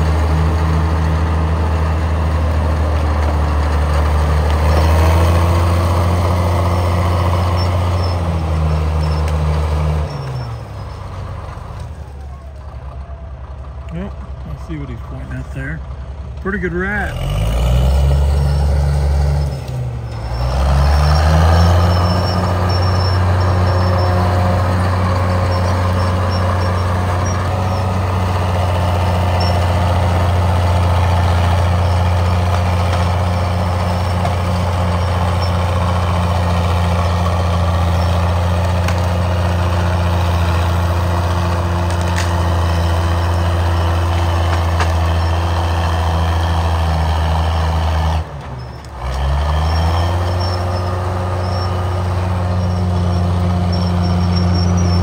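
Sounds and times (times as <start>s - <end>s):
bulldozer diesel engine running: 0.0s - 55.0s.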